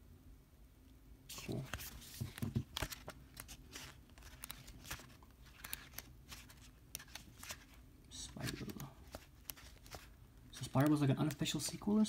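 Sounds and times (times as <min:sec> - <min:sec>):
paper pages being flipped: 0:01.3 - 0:11.8.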